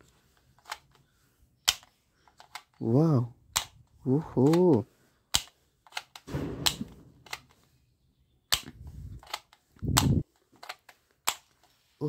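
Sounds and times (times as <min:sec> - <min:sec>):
toy pistol clicks and snaps: 0:01.6 - 0:02.8, 0:03.5 - 0:04.7, 0:05.3 - 0:07.6, 0:08.5 - 0:11.6.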